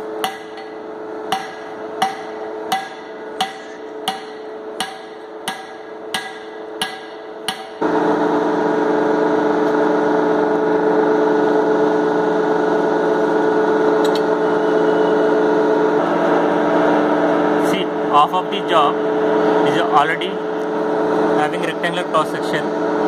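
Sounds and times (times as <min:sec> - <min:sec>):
hammer striking hot steel: 0:00.0 - 0:07.9
loud steady machine hum: 0:00.0 - 0:23.0.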